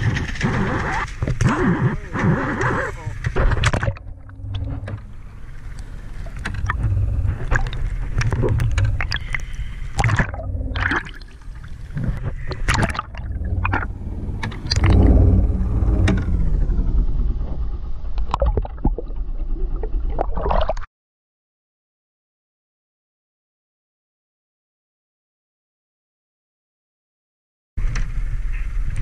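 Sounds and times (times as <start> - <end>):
muffled underwater rumble: 0.0 - 20.8, 27.8 - 29.0
underwater clicks and knocks: 3.2 - 16.3, 18.2 - 20.8
fish thrashing and splashing: 3.4 - 15.4.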